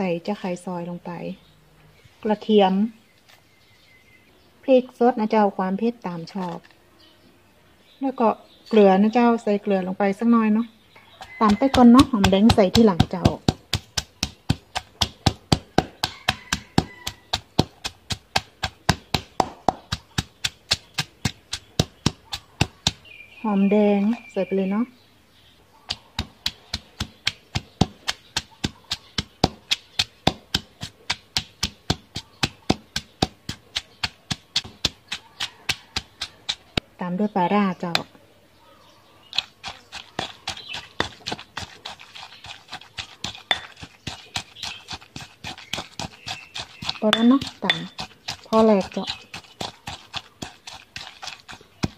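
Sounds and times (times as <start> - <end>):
pestle pounding in stone mortar: 11.2 - 23.2, 25.9 - 36.8, 39.3 - 51.9.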